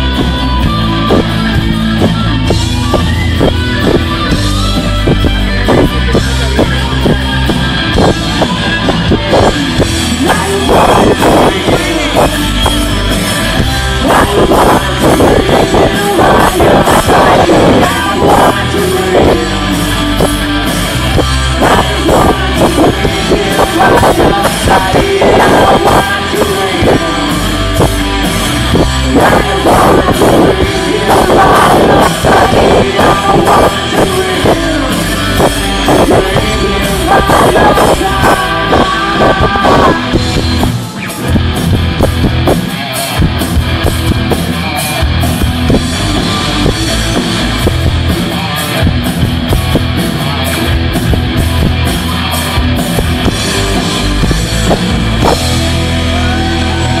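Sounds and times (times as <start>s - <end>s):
live rock band: 0.0s - 57.0s
woman singing: 35.8s - 40.2s.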